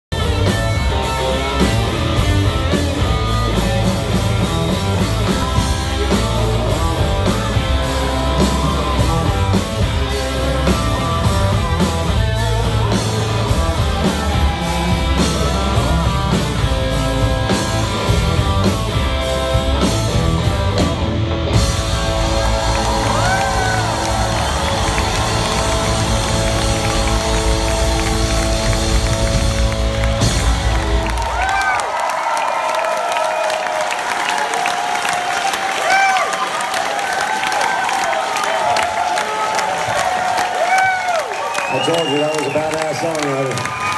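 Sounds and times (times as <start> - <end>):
steady drum beat: 0.1 - 31.8
electric guitars: 0.1 - 32.0.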